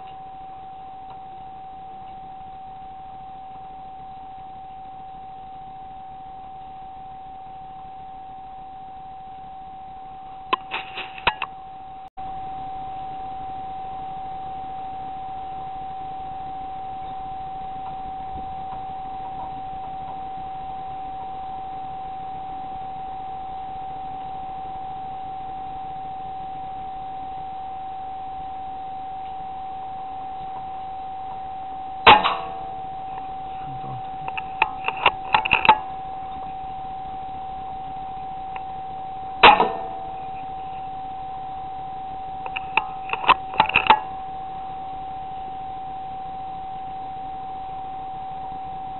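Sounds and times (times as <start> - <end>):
high-pitched electronic whine: 0.0 - 48.9
sharp clicks: 10.5 - 11.5, 34.0 - 36.6, 42.4 - 44.1.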